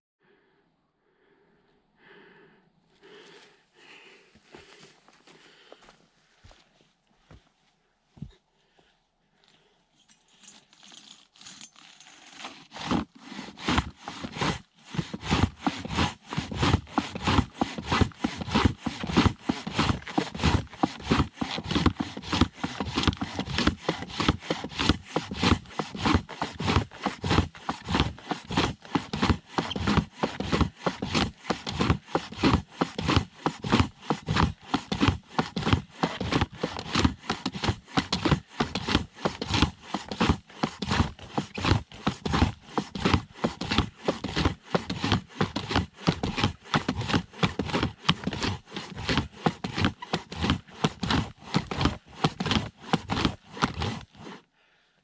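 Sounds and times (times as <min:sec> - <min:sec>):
handsaw cutting wood: 0:11.3 - 0:54.5.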